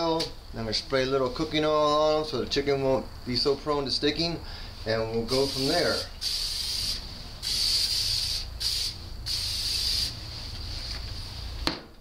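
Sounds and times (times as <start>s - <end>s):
aerosol can spraying: 5.3s - 11.6s.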